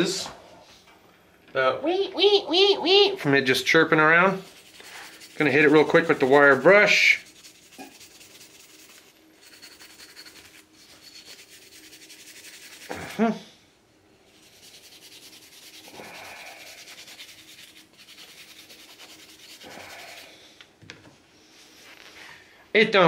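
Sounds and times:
wire brush scrubbing metal: 0:03.4 - 0:13.2, 0:14.3 - 0:20.3.

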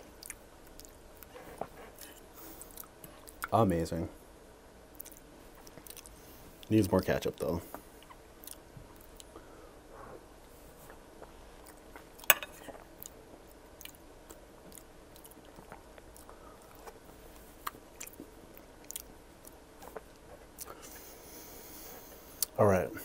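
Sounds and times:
wet chewing mouth sounds: 0:05.0 - 0:06.7, 0:08.0 - 0:09.4, 0:10.9 - 0:21.1.

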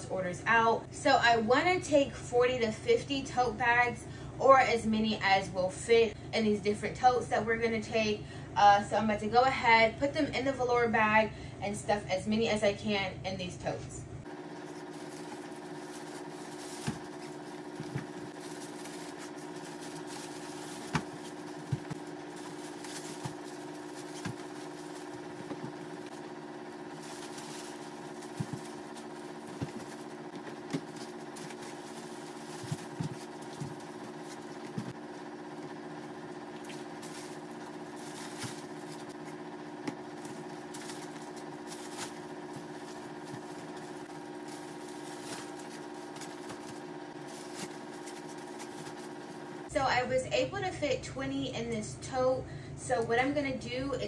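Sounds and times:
mechanical hum: 0:00.0 - 0:54.0
fabric bags knocking and rustling: 0:14.6 - 0:26.2, 0:26.8 - 0:35.0.

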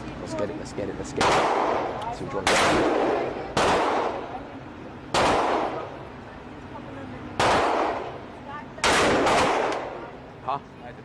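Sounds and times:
rifle shots echoing: 0:01.2 - 0:04.4, 0:05.1 - 0:05.9, 0:07.4 - 0:08.2, 0:08.8 - 0:10.1.

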